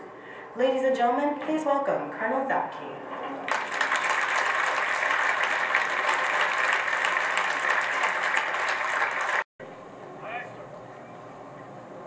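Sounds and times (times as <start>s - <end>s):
crowd applauding: 3.5s - 9.5s.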